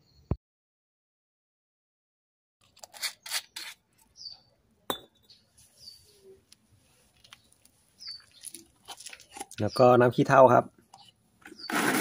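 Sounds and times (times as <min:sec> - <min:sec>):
bird chirps: 0:04.0 - 0:06.4, 0:07.4 - 0:08.7, 0:10.9 - 0:11.8
small hard objects clinking: 0:07.2 - 0:09.7.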